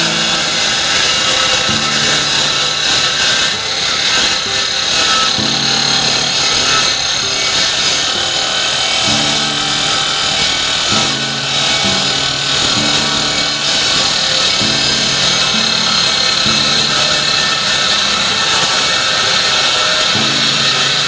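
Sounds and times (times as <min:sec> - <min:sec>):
miter saw cutting steel: 0:00.0 - 0:21.0.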